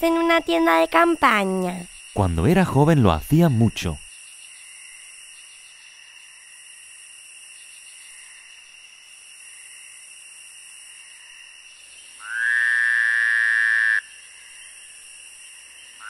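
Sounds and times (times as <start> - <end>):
night insects: 0.0 - 16.0
frog croaking: 12.2 - 14.9.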